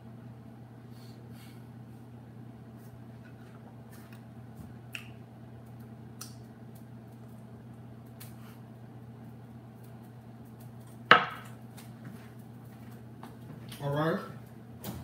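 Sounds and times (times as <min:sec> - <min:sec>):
steady low hum: 0:00.0 - 0:15.0
lip smacks and clicks: 0:04.9 - 0:07.4.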